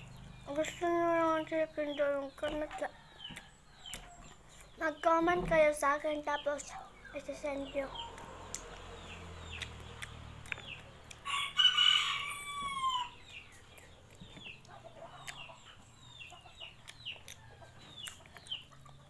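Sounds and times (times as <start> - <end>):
rooster crowing: 11.2 - 13.2.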